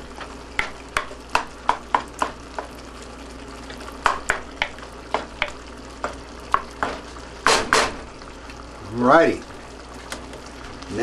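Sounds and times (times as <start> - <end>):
meat sizzling: 0.0 - 11.0
wooden spoon knocking on pan: 0.5 - 2.7, 4.0 - 8.1.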